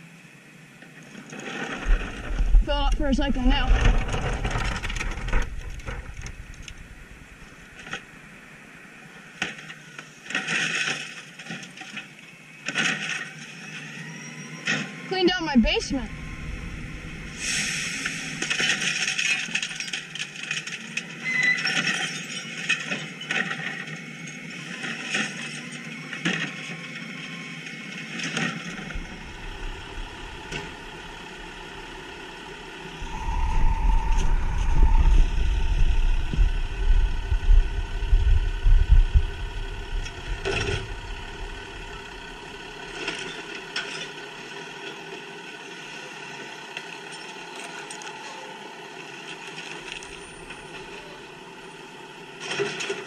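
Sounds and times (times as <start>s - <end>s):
truck engine revving deeply: 15.9s - 18.6s, 28.7s - 43.1s.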